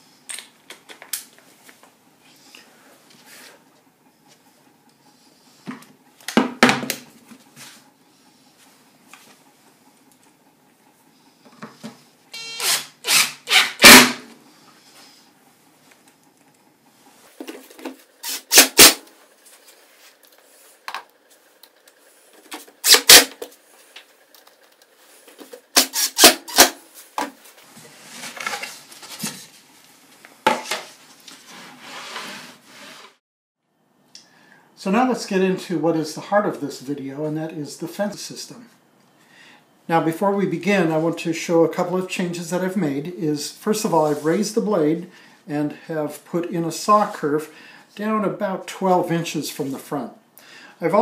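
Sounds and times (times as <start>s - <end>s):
wood sliding and rubbing: 30.7s - 33.2s.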